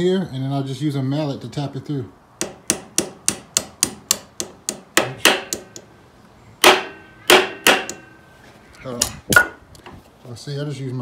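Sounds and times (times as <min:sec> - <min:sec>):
mallet tapping metal bar: 0:02.4 - 0:05.9, 0:06.6 - 0:08.2.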